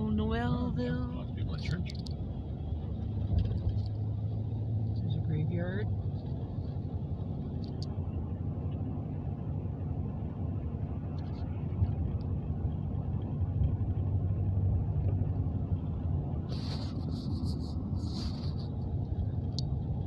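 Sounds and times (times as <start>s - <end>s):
car engine rumble: 0.0s - 20.0s
tyres on the road: 0.0s - 20.0s
hissy rustles: 16.3s - 19.4s.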